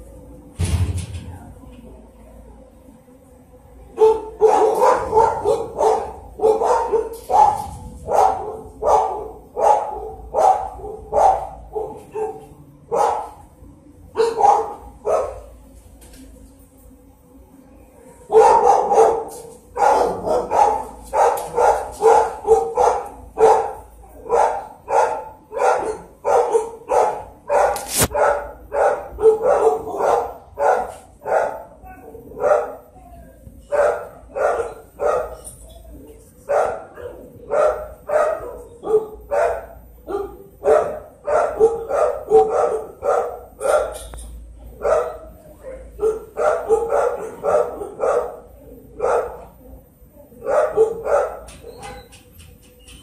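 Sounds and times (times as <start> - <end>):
dog barking: 4.0 - 13.4, 14.2 - 15.5, 18.3 - 32.9, 33.7 - 35.5, 36.5 - 44.1, 44.8 - 49.6, 50.4 - 52.1.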